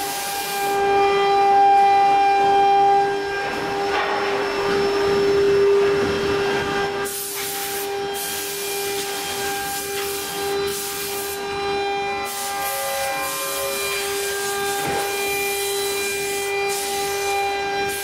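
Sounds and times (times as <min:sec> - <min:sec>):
air hissing: 0:00.0 - 0:00.9, 0:07.0 - 0:18.0
wood router machine whine: 0:00.0 - 0:18.0.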